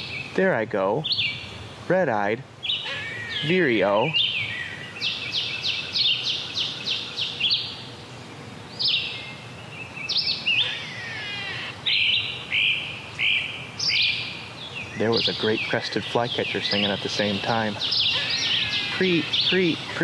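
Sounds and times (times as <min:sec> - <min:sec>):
flycatcher singing: 0:00.0 - 0:01.9, 0:02.6 - 0:20.0
repeated high bird notes: 0:14.9 - 0:20.0.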